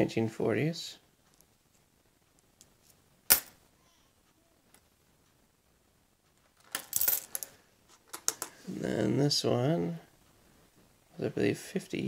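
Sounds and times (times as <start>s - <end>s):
coins clinking on hard surface: 3.3s - 3.6s, 6.6s - 7.6s.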